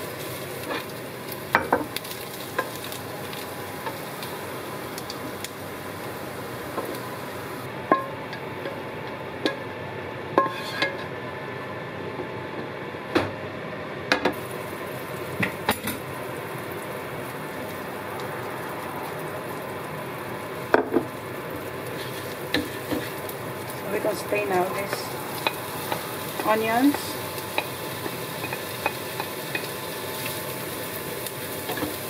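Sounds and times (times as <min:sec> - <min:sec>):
fat sizzling in a pan: 0:00.0 - 0:07.7, 0:10.4 - 0:11.0, 0:14.3 - 0:32.0
wooden spatula scraping a pan: 0:10.4 - 0:11.0, 0:22.0 - 0:23.2.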